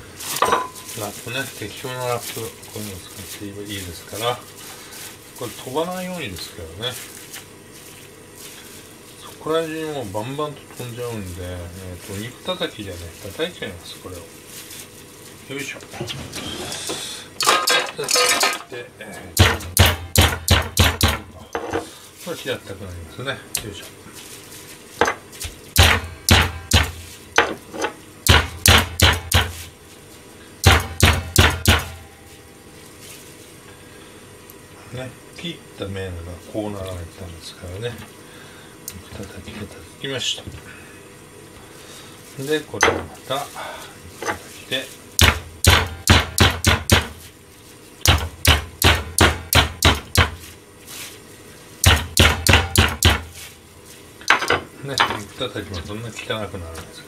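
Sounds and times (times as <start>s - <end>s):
meat pounder thudding on board: 19.4s - 21.3s, 25.8s - 27.6s, 28.3s - 29.6s, 30.6s - 32.0s, 45.2s - 47.2s, 48.1s - 50.4s, 51.8s - 53.3s.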